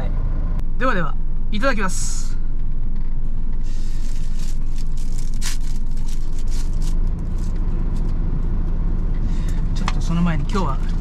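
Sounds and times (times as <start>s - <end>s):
engine idling hum: 0.0s - 11.0s
plastic wrapper crinkling: 3.8s - 7.6s.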